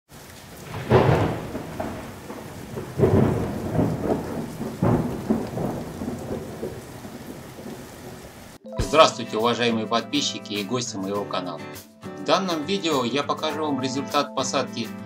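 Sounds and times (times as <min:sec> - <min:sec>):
rain falling: 0:00.1 - 0:08.6
thunder peals: 0:00.4 - 0:08.6.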